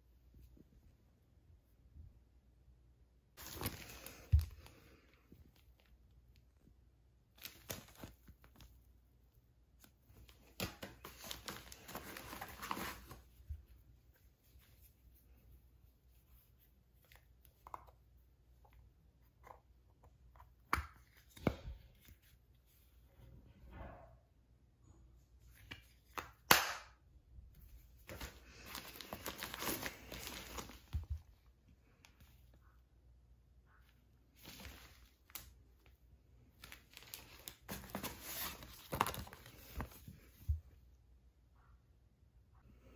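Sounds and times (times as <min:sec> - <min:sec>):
plastic bag crinkling and rustling: 0:03.4 - 0:05.9, 0:28.0 - 0:31.3.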